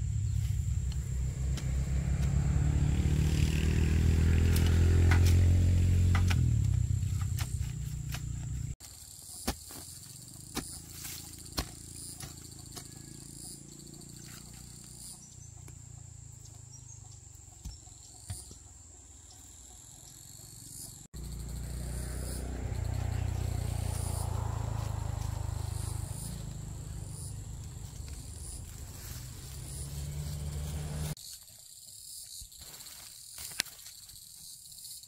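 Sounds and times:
low rumbling noise: 0.0 - 8.8
insects chirping: 0.0 - 35.0.

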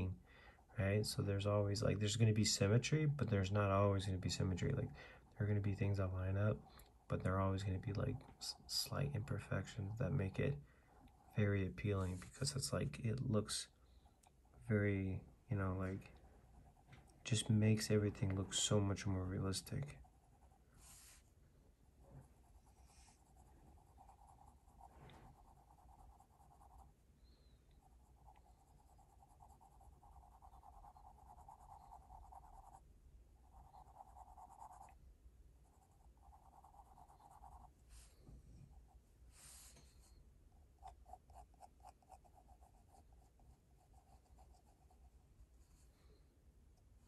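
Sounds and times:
pencil scratching on paper: 22.2 - 26.9, 27.8 - 32.8, 33.4 - 35.0, 35.6 - 40.2, 40.8 - 45.9.

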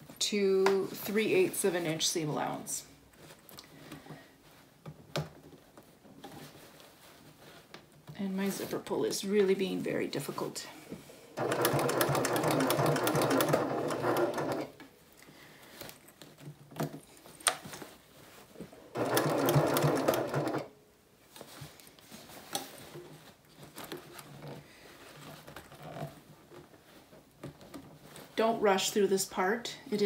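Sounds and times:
sewing machine stitching: 11.4 - 14.8, 18.9 - 20.7.

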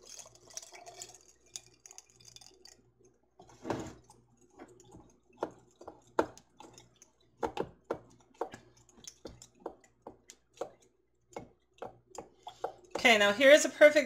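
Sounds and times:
liquid dripping and splashing into jars: 0.0 - 13.4.

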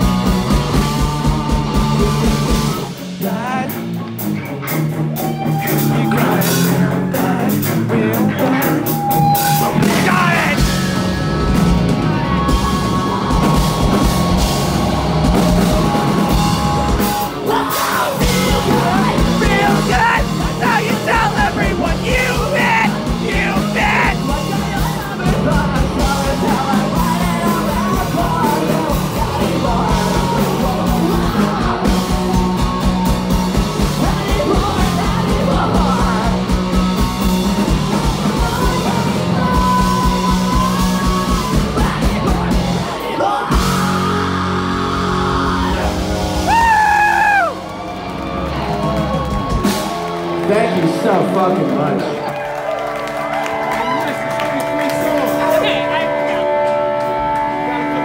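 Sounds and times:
bass: 0.0 - 58.0
distorted electric guitars: 0.0 - 58.0
drums: 0.0 - 58.0
person yelling vocals: 9.6 - 10.6, 17.4 - 25.2.

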